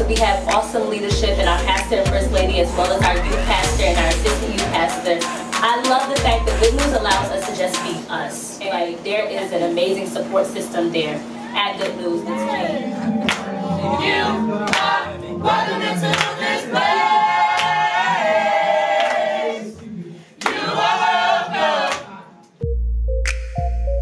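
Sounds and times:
electronic music with deep bass: 0.0 - 7.9, 22.6 - 24.0
young voices singing gospel: 0.0 - 8.2, 11.5 - 22.3
hand claps: 13.2 - 13.5, 14.7 - 14.9, 16.1 - 16.4, 17.5 - 17.8, 20.4 - 20.6, 23.2 - 23.7.

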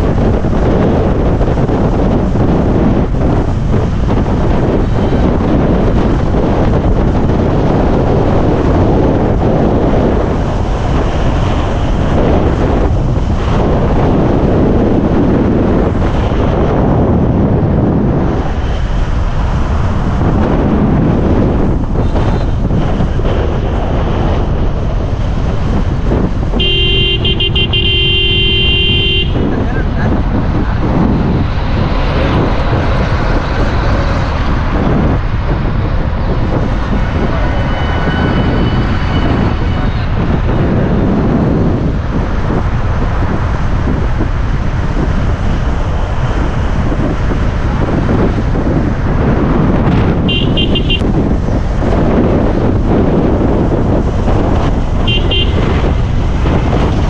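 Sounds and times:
wind and road noise: 0.0 - 57.0
vehicle horn: 26.5 - 29.7, 50.2 - 51.0, 55.0 - 55.9.

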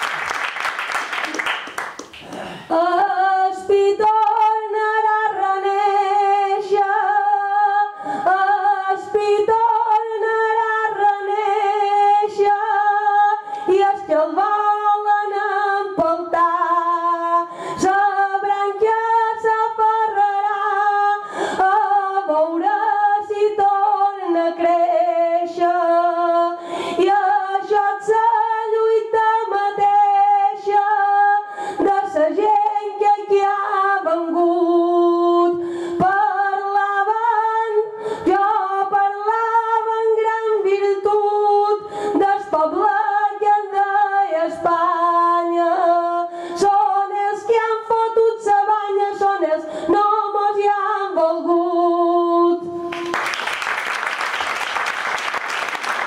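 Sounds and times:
applause: 0.0 - 2.6, 52.9 - 56.0
woman singing unaccompanied: 2.7 - 52.8.

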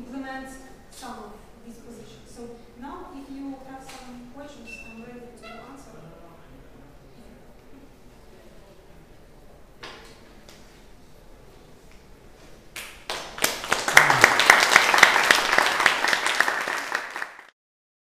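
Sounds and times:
audience applauding: 12.8 - 17.6.

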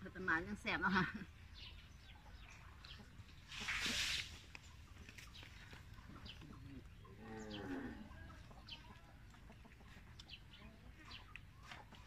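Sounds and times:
small birds chirping: 0.0 - 12.0
cow mooing: 7.2 - 8.1.

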